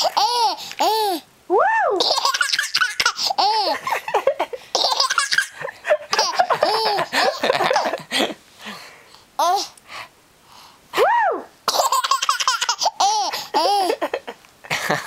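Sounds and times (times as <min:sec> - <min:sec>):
baby laughing: 0:00.0 - 0:01.2, 0:01.9 - 0:08.1, 0:11.7 - 0:14.3.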